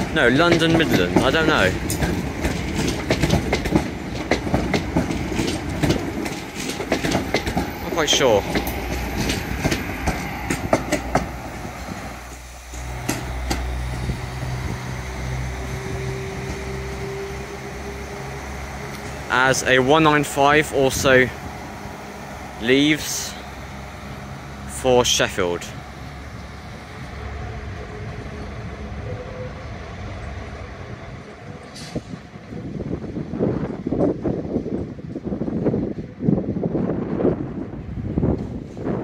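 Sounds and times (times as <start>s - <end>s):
train wheels clicking over rail joints: 0.0s - 27.1s.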